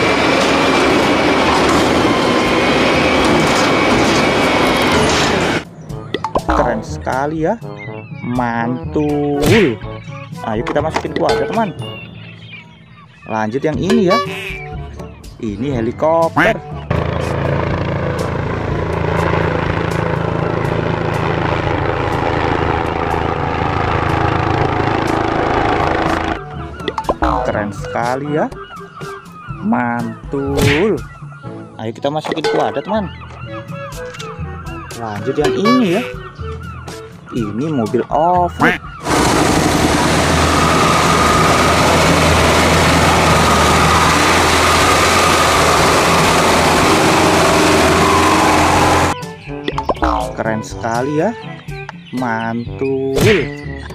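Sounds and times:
truck engine under load: 0.0 - 5.6, 16.9 - 26.4, 39.0 - 49.2
helicopter flying low overhead: 0.0 - 5.9, 16.6 - 27.4, 38.9 - 49.2.

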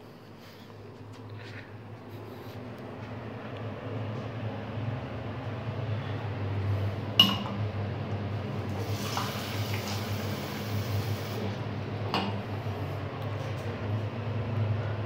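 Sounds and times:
ceramic mug clinking on washbasin: 7.2 - 7.5.

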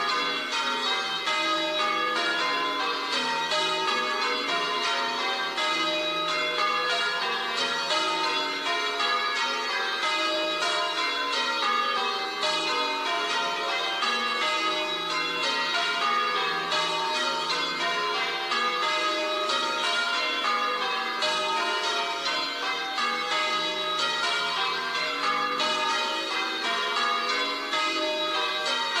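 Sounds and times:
church bells ringing: 0.0 - 29.0.

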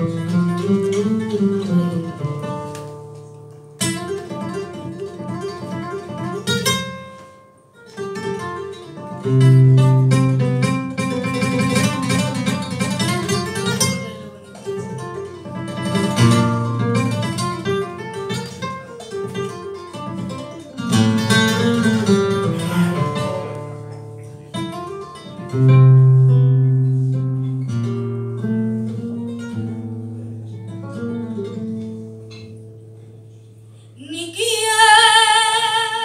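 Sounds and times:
solo flamenco guitar: 0.0 - 36.0.

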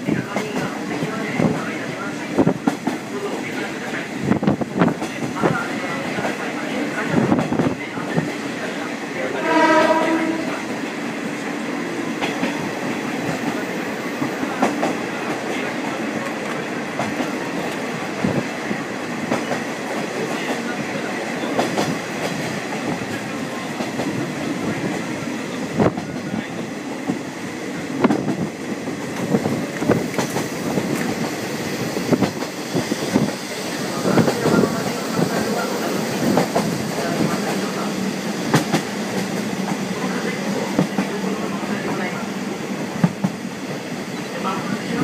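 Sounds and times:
railcar rumble: 0.0 - 45.0
train horn note: 9.3 - 10.7.

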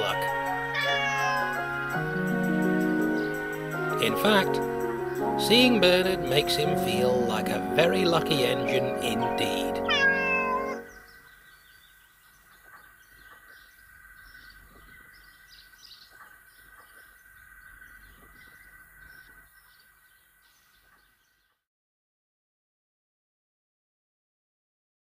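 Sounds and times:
music: 0.0 - 11.0
small birds chirping: 0.0 - 21.7.

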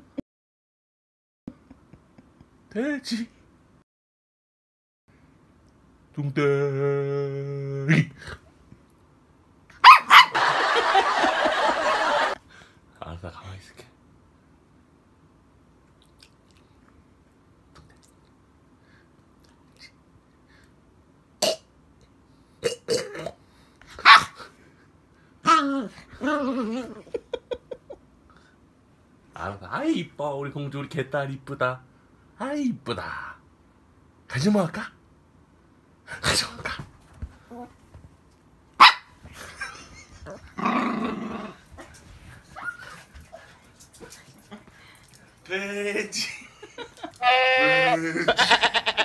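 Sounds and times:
dog grumbling: 40.3 - 41.7.

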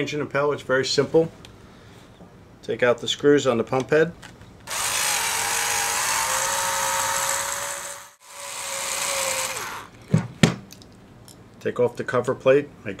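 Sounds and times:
power drill whining: 4.7 - 10.0.

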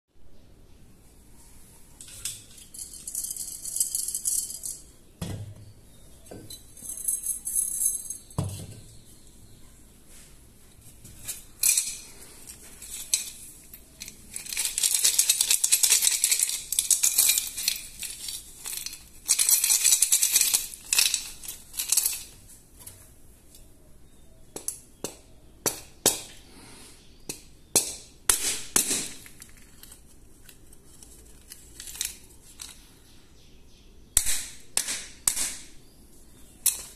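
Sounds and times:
coins rattling in clay banks: 2.0 - 5.0, 6.5 - 9.0, 11.2 - 22.5, 28.8 - 32.9, 36.3 - 36.9.

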